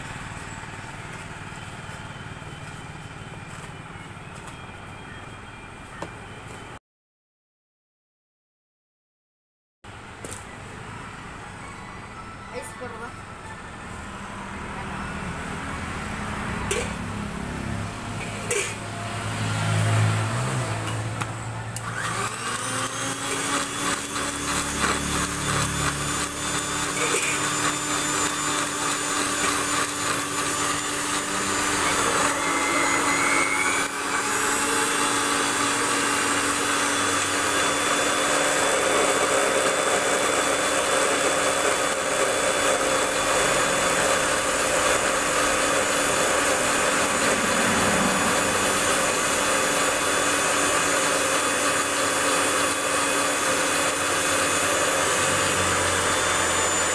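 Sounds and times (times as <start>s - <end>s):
electric mixer-grinder whirring: 12.1s - 56.9s.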